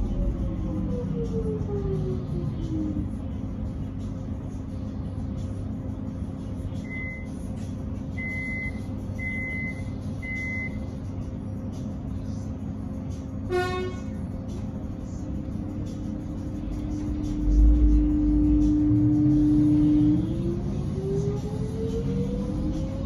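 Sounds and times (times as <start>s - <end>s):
train equipment hum: 0.0s - 23.0s
short buzzy train toot: 13.5s - 14.2s.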